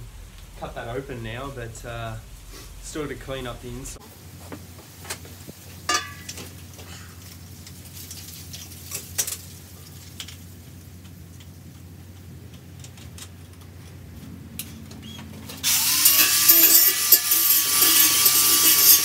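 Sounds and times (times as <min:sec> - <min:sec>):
steady low hum: 0:00.0 - 0:07.7.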